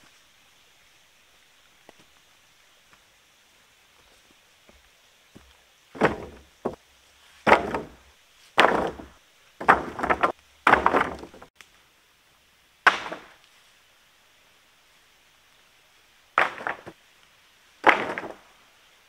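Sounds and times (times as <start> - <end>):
wooden boards dropping on floor: 6.0 - 6.8, 7.4 - 8.0, 8.6 - 11.5, 16.4 - 17.0, 17.8 - 18.4.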